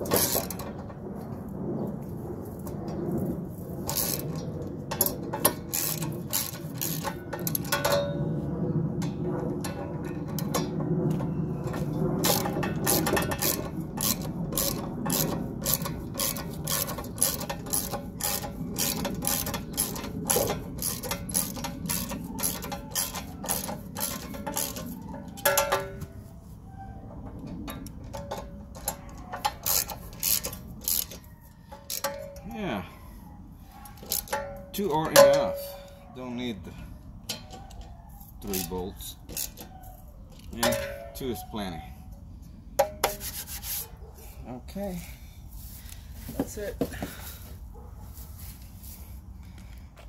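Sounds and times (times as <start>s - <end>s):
ratchet wrench clicking: 3.9s - 4.4s, 5.0s - 8.0s, 12.2s - 25.7s, 28.3s - 32.3s, 34.0s - 34.4s, 39.3s - 39.7s.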